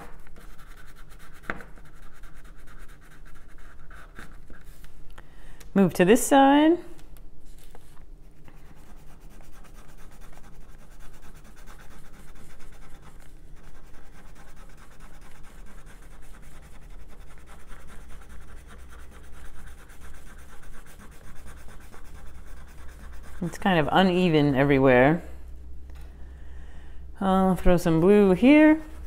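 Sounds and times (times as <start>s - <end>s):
crayon scribbling on paper: 0.2s - 4.9s, 8.4s - 23.9s.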